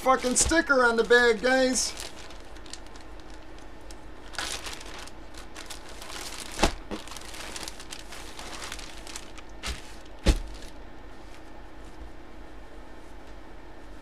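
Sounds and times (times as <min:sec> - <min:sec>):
plastic bag crinkling: 0:00.1 - 0:10.8.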